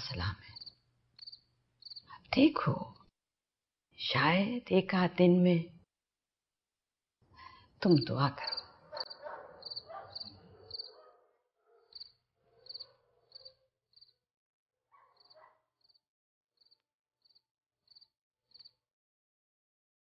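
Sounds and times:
cricket chirping: 0:00.6 - 0:02.1, 0:08.0 - 0:11.0, 0:11.9 - 0:14.2, 0:15.2 - 0:16.0, 0:16.6 - 0:18.8.

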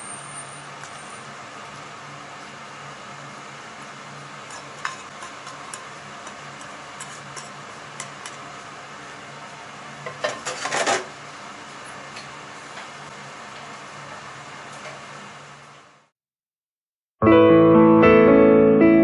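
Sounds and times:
metal tongs scraping a pan: 0:04.5 - 0:08.4.

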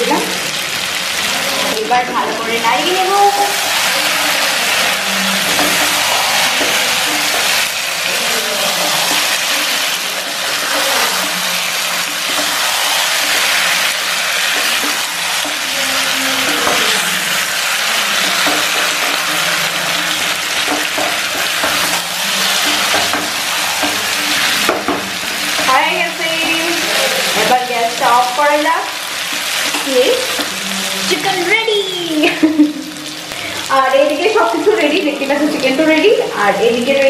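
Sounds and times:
chicken and potatoes sizzling: 0:00.0 - 0:37.0
wooden spatula stirring and scraping: 0:02.8 - 0:31.4.

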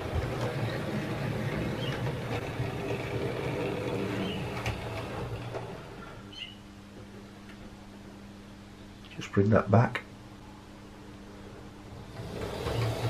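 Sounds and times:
model train motor hum: 0:00.0 - 0:06.1, 0:12.1 - 0:13.0
wheel rumble on track: 0:00.0 - 0:06.1.

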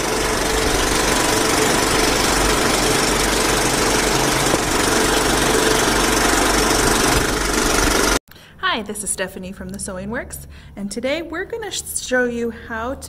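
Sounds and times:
sewing machine running: 0:00.0 - 0:08.2.

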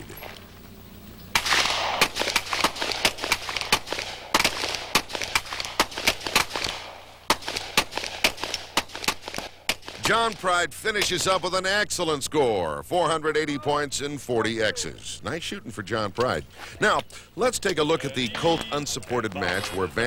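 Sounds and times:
handgun shots with echo: 0:01.4 - 0:10.4.

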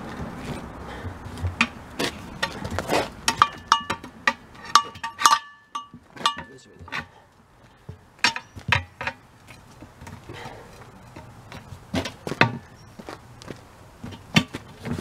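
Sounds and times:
pry bars knocking on wheel rim: 0:01.0 - 0:07.1, 0:07.8 - 0:09.9.

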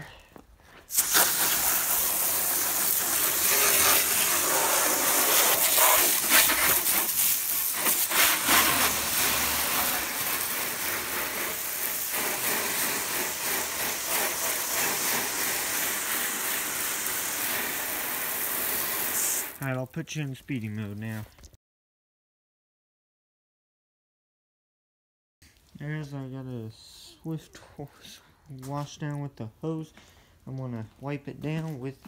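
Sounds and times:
hose nozzle spraying water: 0:00.9 - 0:19.7.

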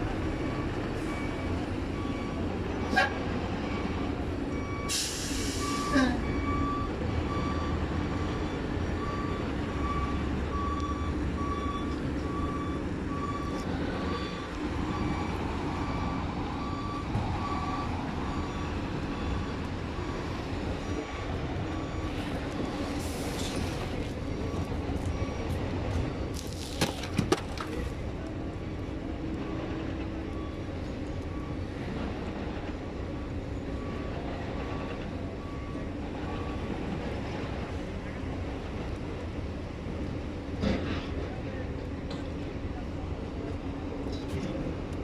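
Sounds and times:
reversing alarm beeping: 0:00.0 - 0:26.5, 0:29.3 - 0:32.3, 0:33.1 - 0:37.1
diesel engine rumble: 0:00.0 - 0:45.0.

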